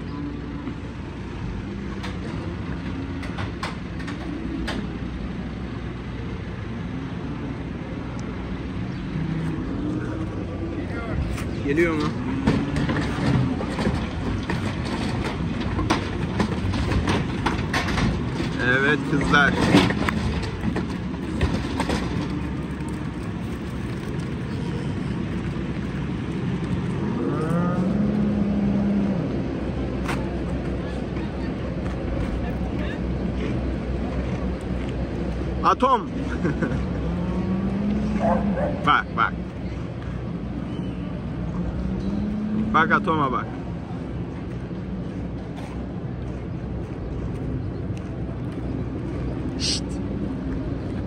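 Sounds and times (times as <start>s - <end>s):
sharp knocks and clatters: 12.0s - 24.2s.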